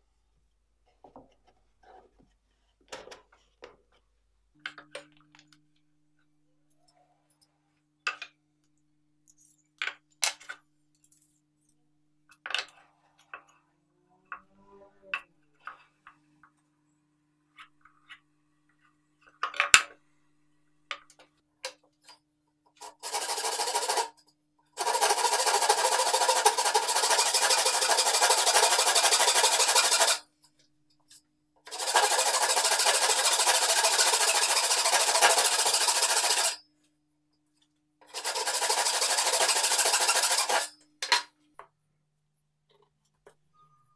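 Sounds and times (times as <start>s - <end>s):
hand saw cutting plywood: 22.8s - 24.1s, 24.8s - 30.2s, 31.7s - 36.6s, 38.1s - 40.7s.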